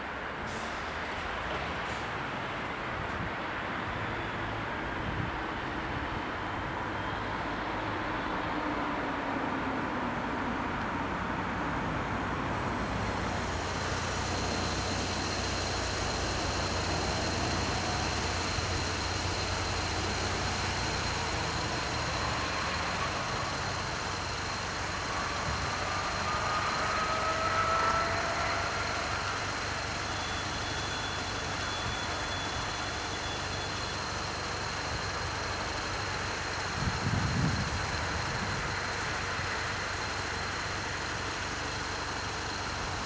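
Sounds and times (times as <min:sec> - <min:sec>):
road vehicles idling: 0:00.0 - 0:43.0
faint high whine: 0:12.0 - 0:43.0.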